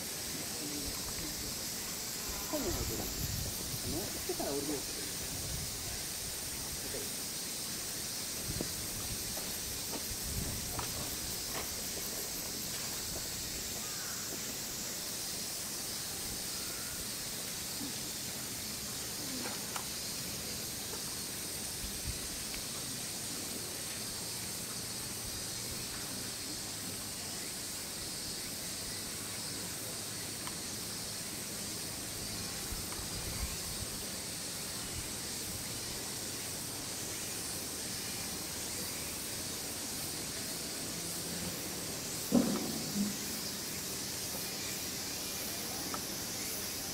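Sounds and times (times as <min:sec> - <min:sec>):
high-pitched outdoor hiss: 0:00.0 - 0:46.9
faint soft knocks: 0:42.3 - 0:43.2.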